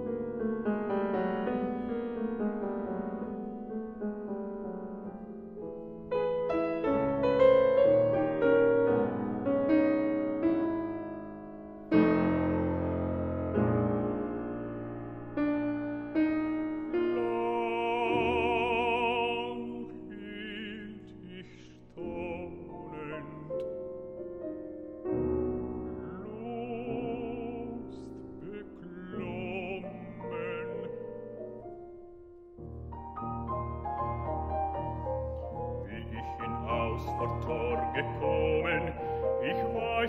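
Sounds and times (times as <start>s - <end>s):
piano chords: 0.0s - 40.0s
baritone singing with vibrato: 17.0s - 23.9s, 25.8s - 31.2s, 34.7s - 40.0s.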